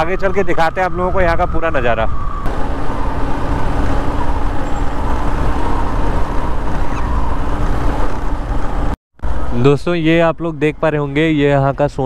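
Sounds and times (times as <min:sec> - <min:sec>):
rumbling wind and road noise: 0:00.0 - 0:12.0
motorcycle engine running: 0:02.5 - 0:09.0.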